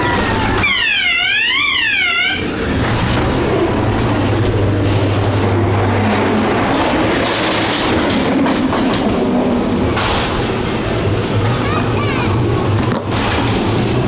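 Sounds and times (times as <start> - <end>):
ride car wheels rumbling and clattering: 0.0 - 14.0
steady low hum: 1.7 - 7.2.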